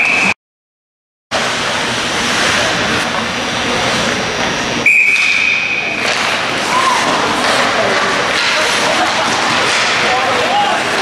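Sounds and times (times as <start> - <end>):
echoing ice arena noise: 0.0 - 0.4, 1.4 - 11.0
referee's whistle: 0.0 - 0.4, 4.8 - 6.0.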